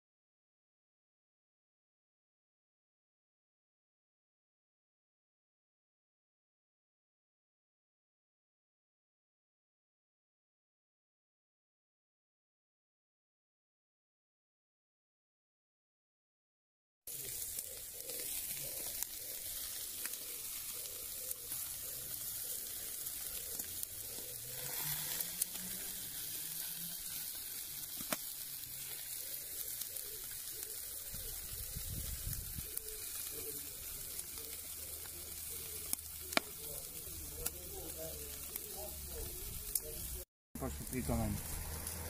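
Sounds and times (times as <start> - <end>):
meat sizzling on a grill: 17.1 - 42.0
sharp crackling pops: 17.1 - 42.0.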